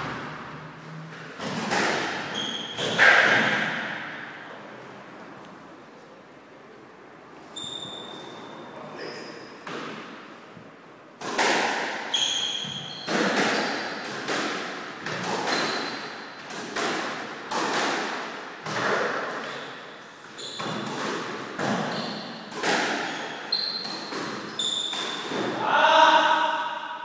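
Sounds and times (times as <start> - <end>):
shoes squeaking on wooden floor: 2.2 - 3.1, 7.4 - 9.9, 12.1 - 14.0, 15.2 - 16.1, 19.4 - 25.5.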